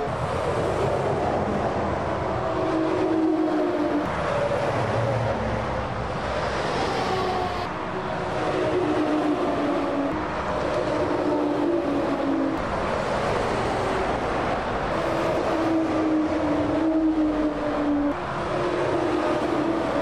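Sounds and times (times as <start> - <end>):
continuous traffic: 0.0 - 20.0
heavy lorries passing: 0.0 - 20.0.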